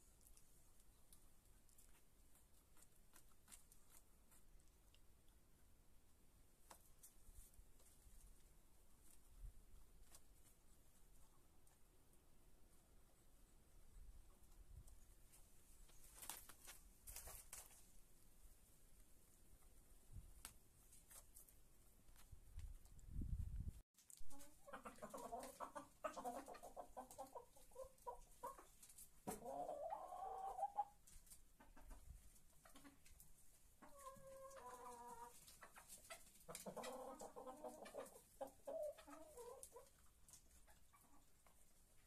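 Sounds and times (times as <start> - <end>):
chickens clucking: 24.3 - 42.0.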